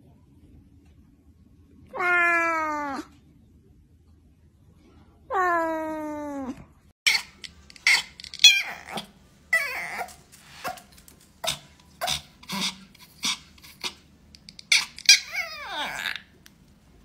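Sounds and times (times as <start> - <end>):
dog whining: 5.4 - 14.0, 14.6 - 16.3
dog yipping: 7.1 - 16.2.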